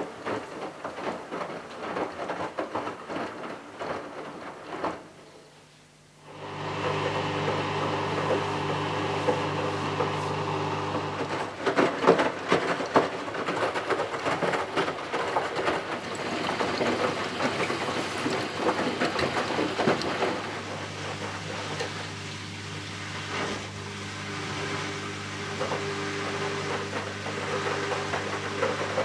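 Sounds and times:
washing machine motor hum: 6.1 - 29.0.

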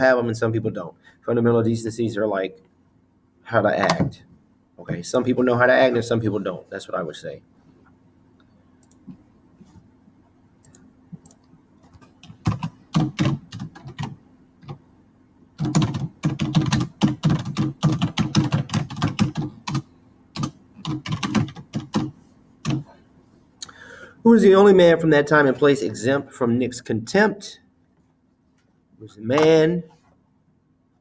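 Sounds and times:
typing on computer keyboard: 12.0 - 14.8, 15.6 - 22.9.

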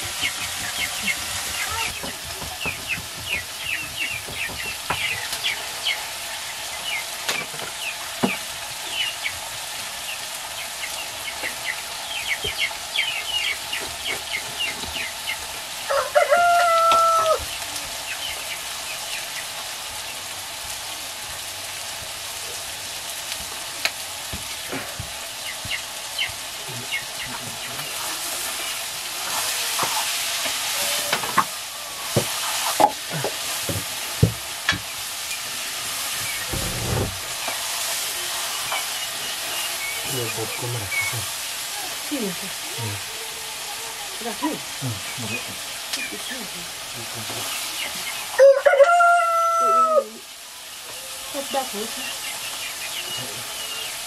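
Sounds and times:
chicken sizzling in a wok: 0.0 - 54.0
rooster crowing: 15.9 - 17.5, 48.3 - 50.2.

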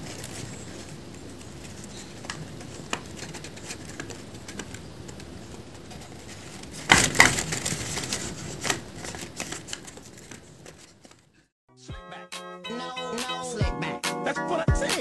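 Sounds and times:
handling noise and rustling: 0.0 - 11.5.

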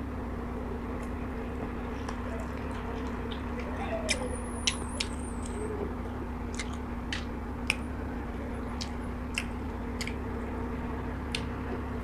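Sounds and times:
crunchy chewing: 6.5 - 7.8, 8.7 - 10.5.

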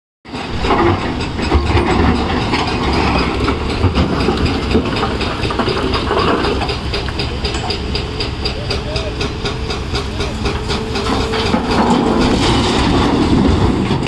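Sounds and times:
diesel machinery running: 0.3 - 14.0
hydraulic rock breaker hammering: 0.3 - 14.0.

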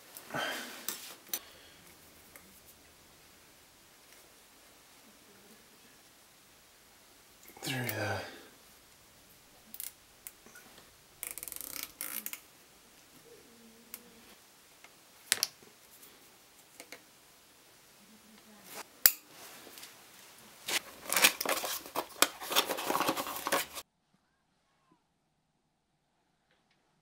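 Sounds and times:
zip tie clicks and rustles: 11.2 - 12.4
zip tie ratcheting clicks: 11.2 - 12.4.

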